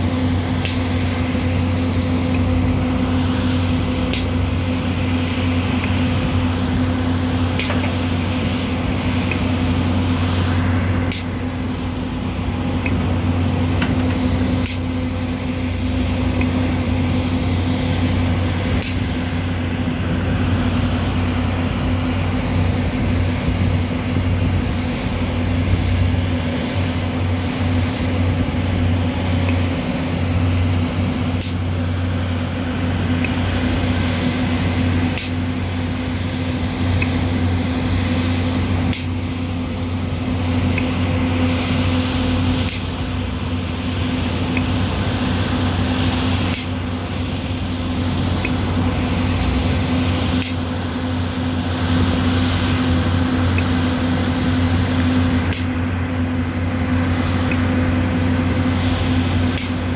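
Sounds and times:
excavator engine and hydraulics: 0:00.0 - 0:59.9.

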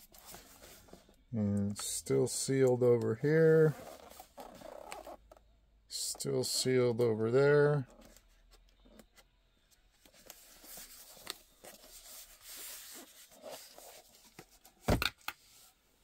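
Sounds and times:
packaging rustling and scraping: 0:03.3 - 0:05.4, 0:10.0 - 0:14.8.

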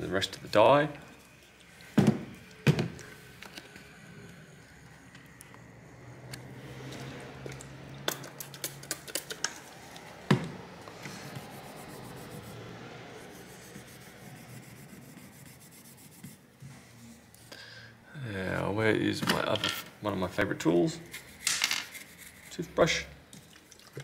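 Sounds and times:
tissue rubbing on chip: 0:13.2 - 0:16.4.

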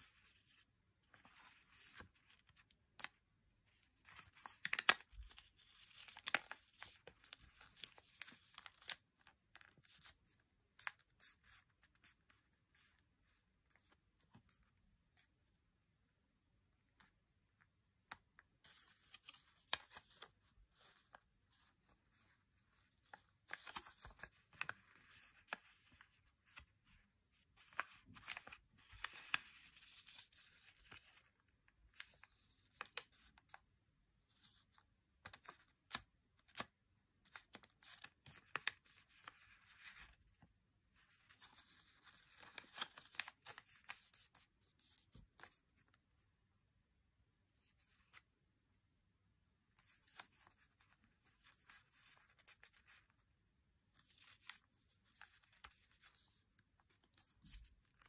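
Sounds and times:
paper rustling and crackling: 0:00.0 - 0:13.0, 0:18.6 - 0:33.6, 0:37.3 - 0:45.9
paper folds snapping: 0:04.1 - 0:06.9, 0:37.3 - 0:38.8.

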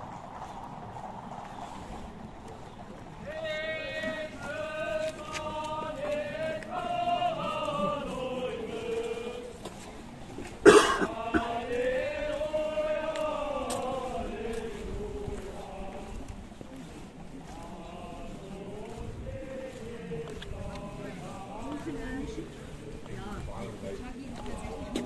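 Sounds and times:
men singing a hymn in unison: 0:03.2 - 0:25.0
loud cough-like burst: 0:10.6 - 0:11.5.

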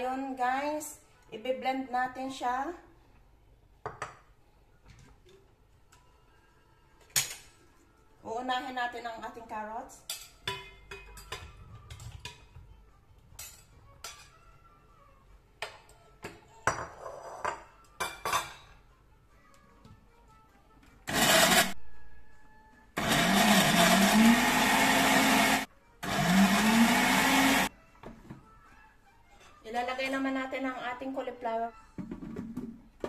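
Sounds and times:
metal spatula clinking on bowl: 0:10.1 - 0:12.5
blender motor running: 0:21.1 - 0:21.8, 0:23.0 - 0:27.7.

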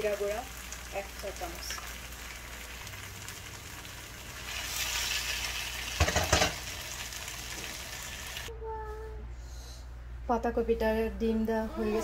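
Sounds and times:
food sizzling in a pot: 0:00.0 - 0:08.5.

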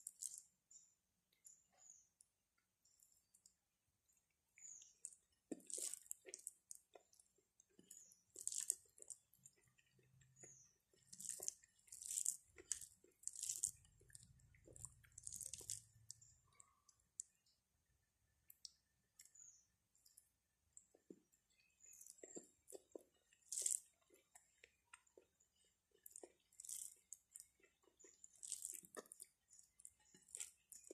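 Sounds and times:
person chewing food: 0:00.0 - 0:00.5, 0:04.5 - 0:17.4, 0:18.5 - 0:30.9.

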